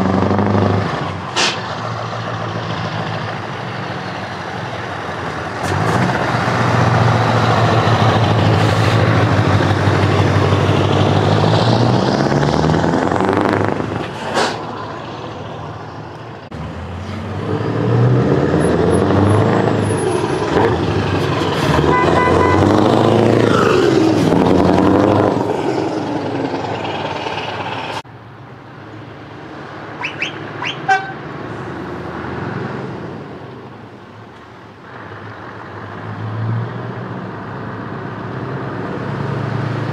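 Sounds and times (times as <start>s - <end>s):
truck diesel engines passing: 0.0s - 39.9s
truck horn toots: 21.7s - 22.8s, 30.0s - 31.2s.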